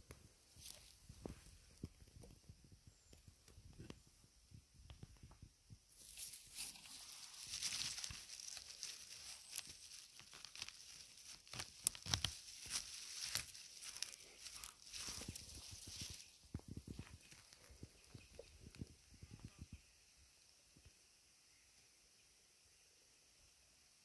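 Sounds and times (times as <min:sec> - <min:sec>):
hand rustling through grass: 0:00.5 - 0:02.0, 0:05.9 - 0:18.8
crackling and tearing: 0:06.0 - 0:17.8
debris clicks and snaps: 0:07.4 - 0:17.7.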